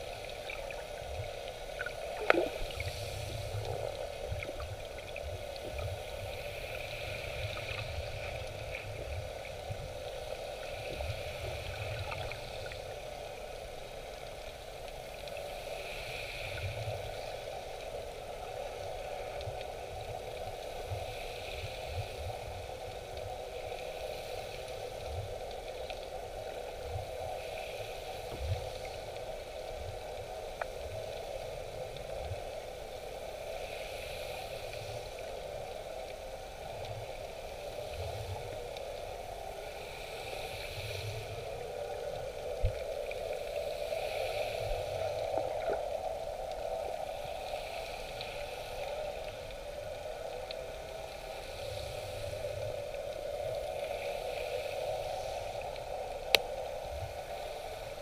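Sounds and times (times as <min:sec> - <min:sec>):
muffled underwater hum: 0:00.0 - 0:15.4
underwater bumps and gurgles: 0:01.8 - 0:05.0.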